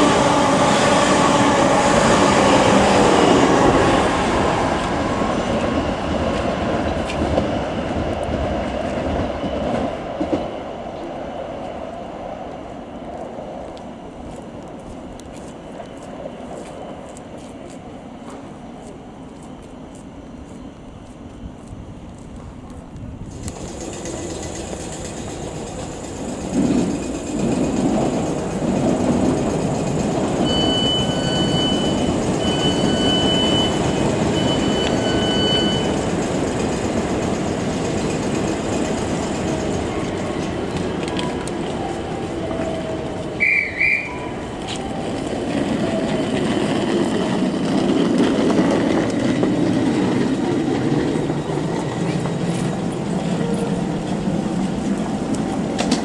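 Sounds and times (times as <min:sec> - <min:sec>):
electric train rumbling: 0:00.0 - 0:56.0
short high beeps: 0:30.4 - 0:36.0
shrill whistle: 0:30.4 - 0:36.0, 0:43.4 - 0:45.1.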